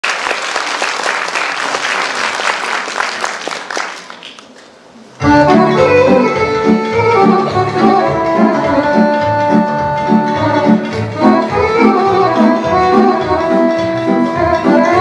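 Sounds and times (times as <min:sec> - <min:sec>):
audience applauding: 0:00.0 - 0:04.8
instrumental folk music: 0:05.2 - 0:15.0.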